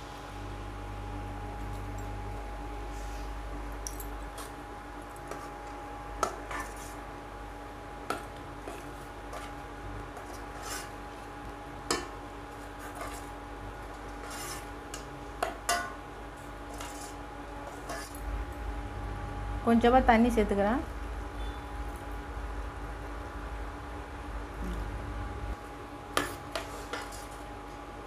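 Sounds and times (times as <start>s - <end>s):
steady hum: 0.0s - 28.0s
ladle stirring liquid in pan: 8.1s - 11.2s, 12.6s - 15.9s, 16.7s - 18.2s.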